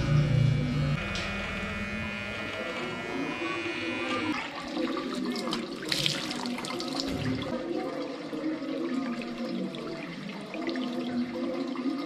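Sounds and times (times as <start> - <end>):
electric trimmer buzzing: 0.0 - 4.6
tap water splashing into basin: 4.4 - 7.6.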